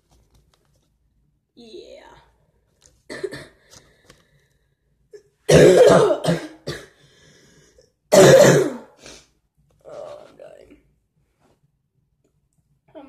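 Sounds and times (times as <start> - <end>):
person coughing: 3.1 - 3.6, 5.2 - 7.0, 8.1 - 9.0.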